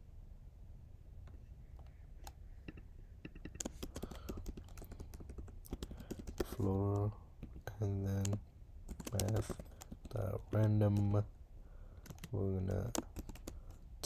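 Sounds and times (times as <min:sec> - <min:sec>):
typing on computer keyboard: 0:02.7 - 0:11.2, 0:12.0 - 0:13.8.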